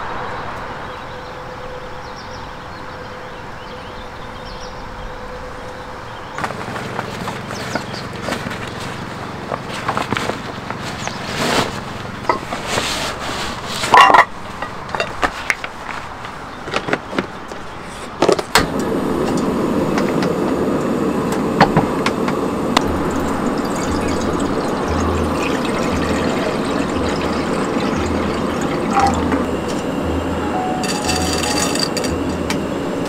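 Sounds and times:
gas burner hissing: 18.6s - 33.0s
water pouring into pan: 22.8s - 29.9s.

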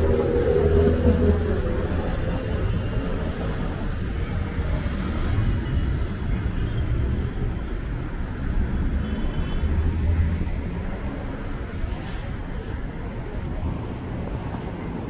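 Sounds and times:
passing cars rumbling: 0.0s - 15.0s.

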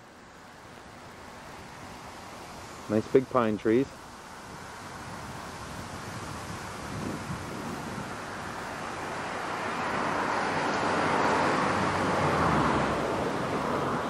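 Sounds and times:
vehicle passing by: 6.2s - 14.0s.

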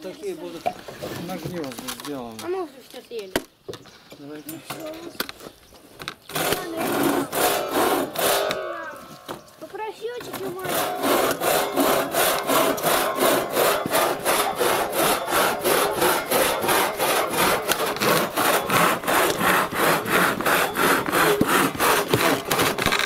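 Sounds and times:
saw rasping through wood: 6.3s - 8.7s, 10.3s - 23.0s.

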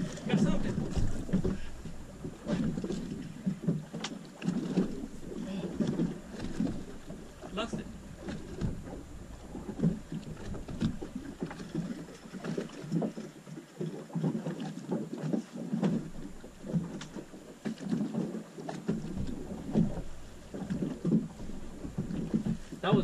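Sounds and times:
water lapping against boat hull: 0.0s - 23.0s.

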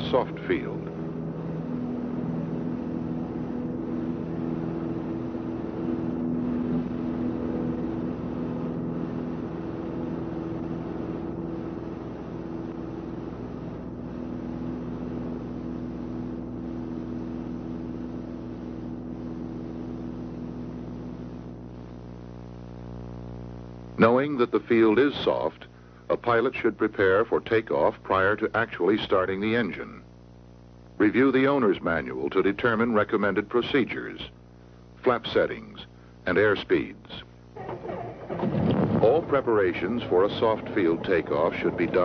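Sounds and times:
light airplane engine drone: 0.0s - 22.3s, 35.4s - 42.0s.

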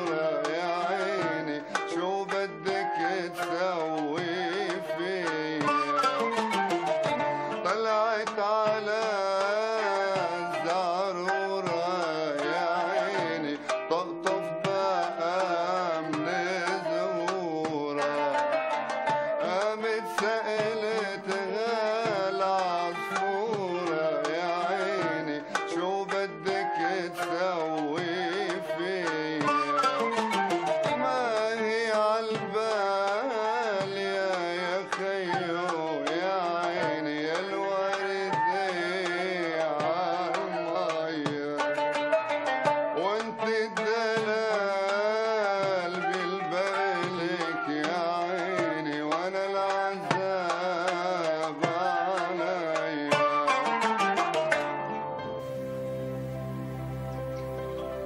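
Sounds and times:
person singing ornamented melody: 0.0s - 41.7s, 42.9s - 54.2s
qanun oud and ney: 0.0s - 58.0s
ornamented melody with vibrato: 53.5s - 58.0s.

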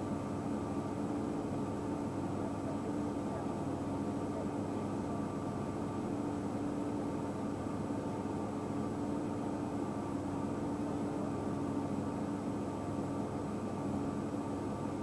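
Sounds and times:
mechanical hum with held tones: 0.0s - 15.0s.

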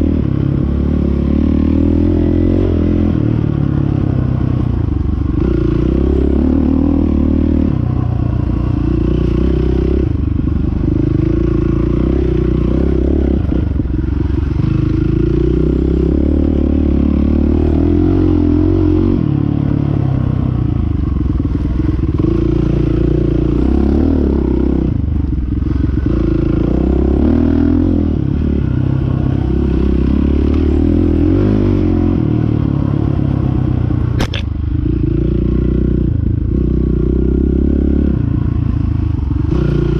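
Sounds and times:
dirt bike engine revving: 21.0s - 33.4s
sharp click: 34.2s - 34.5s.

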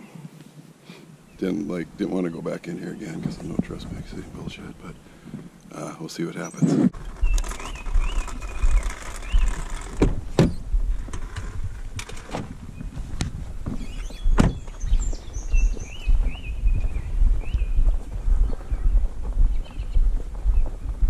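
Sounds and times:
wind rumble on microphone: 0.0s - 5.6s, 6.6s - 21.0s
bird chirping: 1.1s - 10.8s, 12.6s - 21.0s
truck door clunks and clicks: 9.9s - 10.6s, 14.4s - 14.7s.

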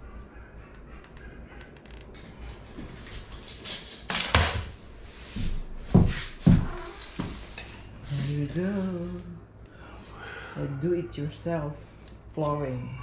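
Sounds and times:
knocks and scrapes on wooden floor: 2.8s - 7.7s.

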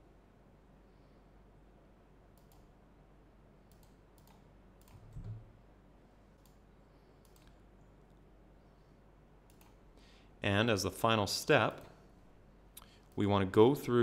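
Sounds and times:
computer mouse clicks: 2.3s - 2.7s, 3.7s - 5.4s, 6.4s - 6.6s, 7.2s - 7.6s, 9.4s - 9.8s.

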